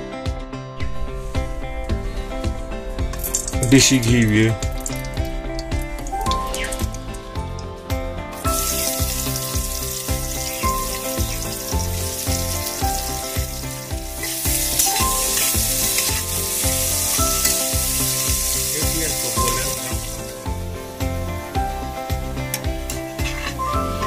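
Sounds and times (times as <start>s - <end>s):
background music with steady beat: 0.0s - 24.0s
onions sizzling in oil: 8.4s - 24.0s.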